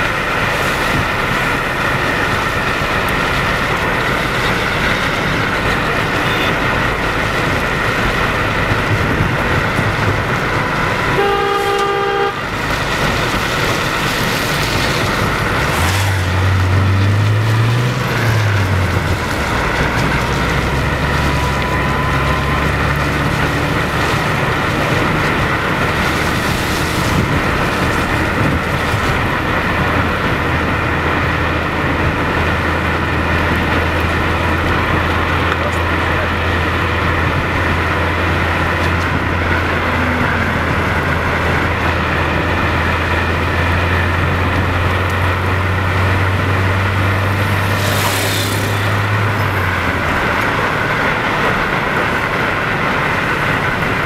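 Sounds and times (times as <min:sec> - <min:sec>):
car road noise on slush: 0:00.0 - 0:54.0
low engine hum: 0:00.0 - 0:54.0
vehicle horn honking: 0:06.0 - 0:06.9, 0:11.0 - 0:12.6.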